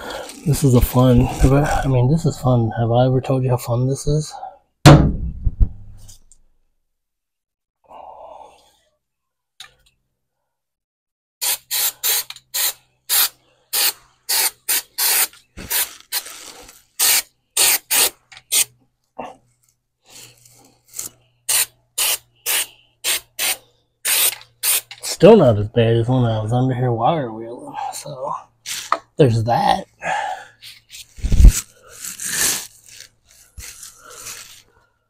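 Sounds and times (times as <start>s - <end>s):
spray bursts: 11.4s - 15.8s, 21.5s - 25.0s.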